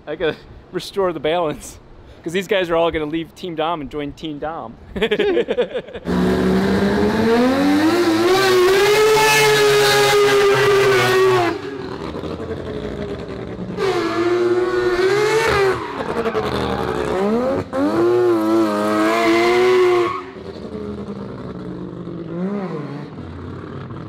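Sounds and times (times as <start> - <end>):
rotary engine revving hard: 6.0 - 24.0.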